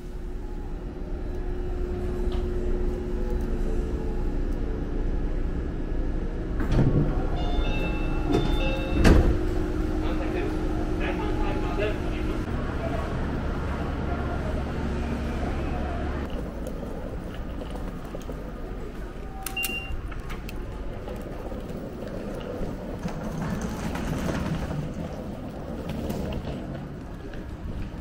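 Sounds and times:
busy station ambience: 0:00.0 - 0:28.0
low hum: 0:00.0 - 0:28.0
ticket gate beep: 0:07.4 - 0:09.3, 0:19.5 - 0:20.0.

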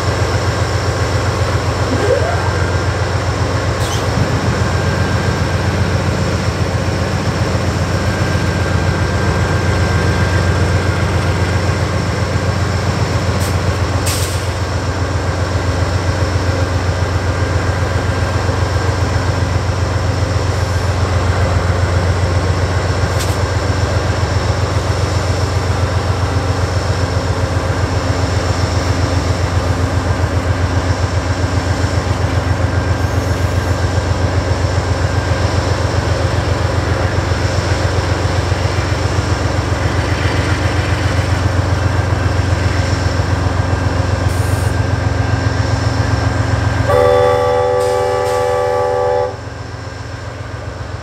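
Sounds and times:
diesel locomotive engine rumble: 0:00.0 - 0:51.0
locomotive horn chord: 0:46.9 - 0:49.4.

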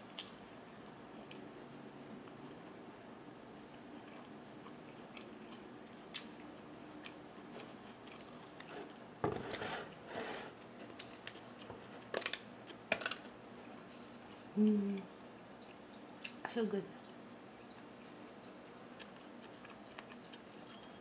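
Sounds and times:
person chewing food: 0:03.6 - 0:09.7, 0:10.6 - 0:16.4, 0:17.0 - 0:21.0.

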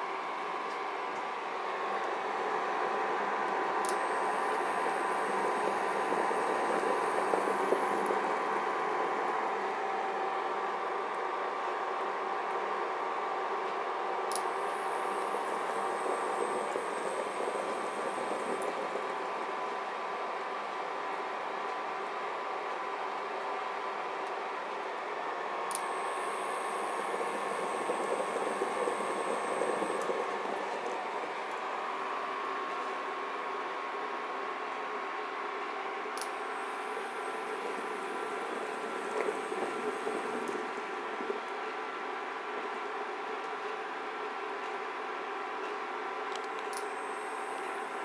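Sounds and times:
faint high whine: 0:00.0 - 0:13.3, 0:14.2 - 0:22.1, 0:25.4 - 0:35.0, 0:36.0 - 0:43.2
induction cooker whirring: 0:00.0 - 0:13.6, 0:14.3 - 0:21.6, 0:25.6 - 0:33.6, 0:36.2 - 0:42.4, 0:46.3 - 0:48.0
water boiling in a pot: 0:00.0 - 0:45.3, 0:45.9 - 0:48.0.

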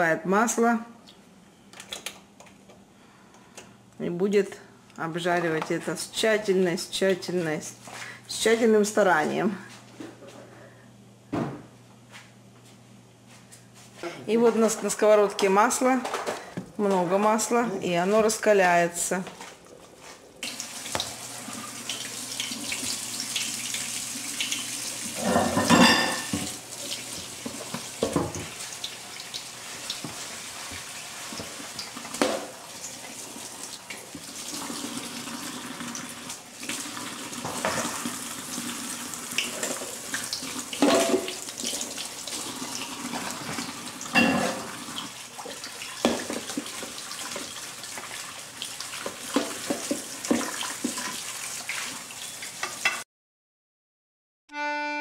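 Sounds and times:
eggplant sizzling in oil: 0:20.4 - 0:25.3, 0:26.2 - 0:36.0, 0:36.8 - 0:53.0.

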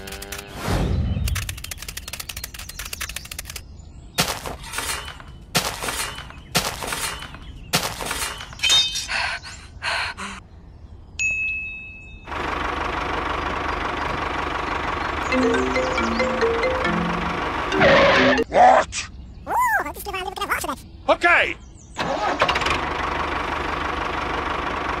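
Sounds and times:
fast rattle of clicks: 0:01.3 - 0:03.6.

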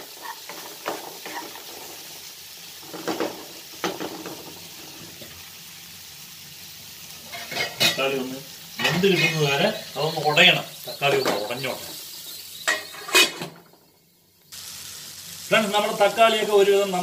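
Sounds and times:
spatula scraping a pan: 0:00.0 - 0:02.3, 0:07.2 - 0:08.2, 0:08.8 - 0:13.6
tomatoes sizzling in a pan: 0:00.0 - 0:17.0.

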